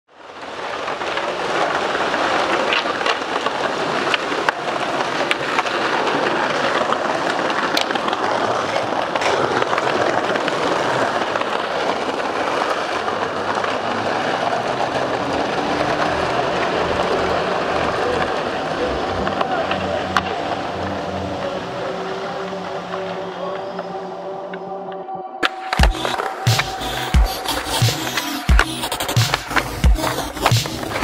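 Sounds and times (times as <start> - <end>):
skateboard wheels rolling on concrete: 0.1 - 31.0
wheels clicking over joints: 0.2 - 24.2.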